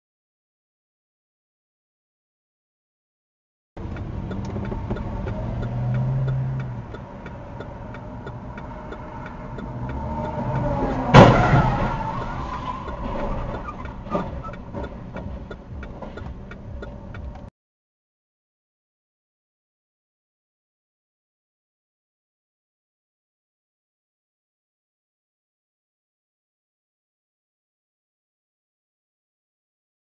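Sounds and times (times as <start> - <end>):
faint regular ticking: 3.8 - 11.1, 12.8 - 17.5
road traffic: 3.8 - 17.5
car collision crash: 10.8 - 14.5.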